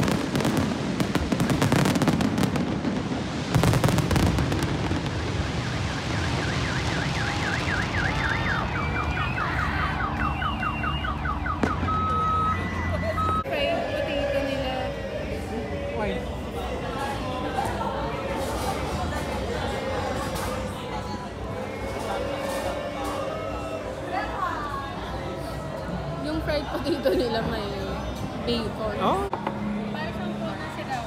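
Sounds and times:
fireworks crackling and banging: 0:00.0 - 0:13.3, 0:18.3 - 0:23.2
car alarm: 0:05.3 - 0:13.5.

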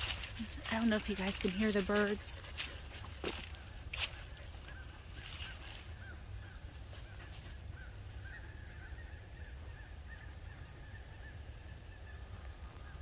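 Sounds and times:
flock of birds chirping: 0:00.0 - 0:13.0.

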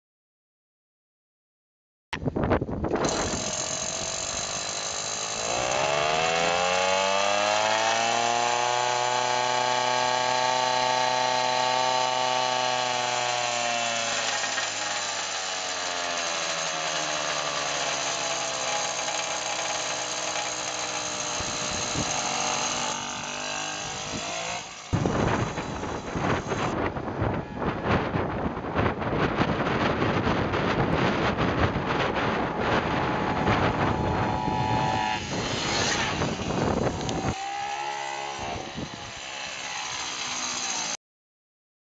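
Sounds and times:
rough wind noise: 0:02.2 - 0:06.3, 0:20.8 - 0:39.4.

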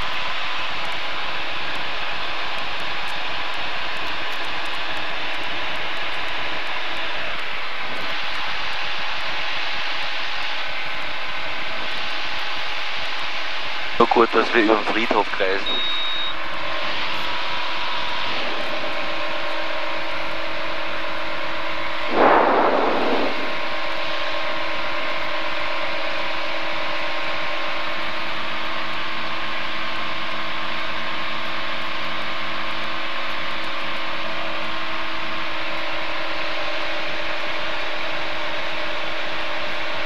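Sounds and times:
burst of noise: 0:22.1 - 0:24.4.

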